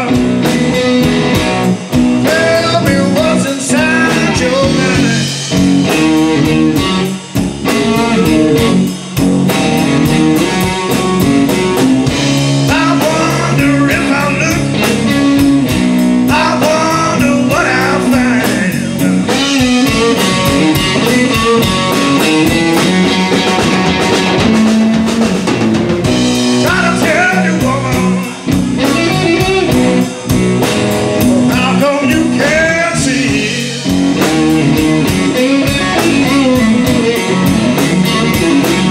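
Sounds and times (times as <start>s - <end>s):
man singing: 0.0s - 1.0s, 2.2s - 5.5s, 12.6s - 15.6s, 16.2s - 22.3s, 26.5s - 29.8s, 31.2s - 33.9s
blues-rock band playing: 0.0s - 38.9s.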